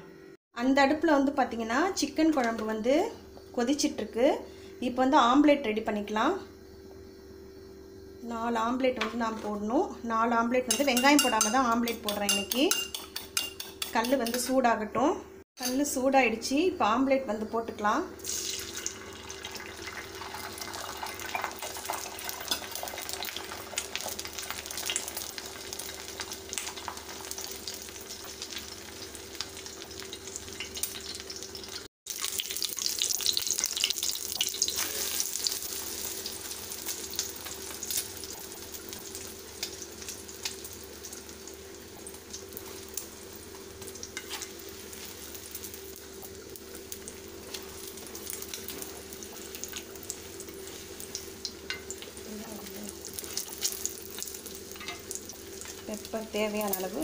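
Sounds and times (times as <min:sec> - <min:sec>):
egg sizzling on a griddle: 0:10.7 - 0:14.1, 0:18.2 - 0:57.0.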